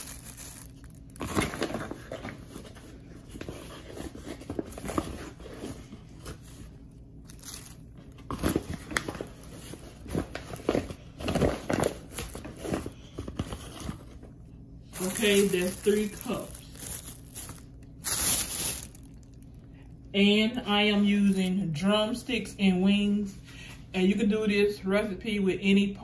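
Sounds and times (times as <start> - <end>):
plastic bag crinkling: 0.0 - 2.6, 7.2 - 14.2, 14.9 - 19.8, 21.2 - 21.5.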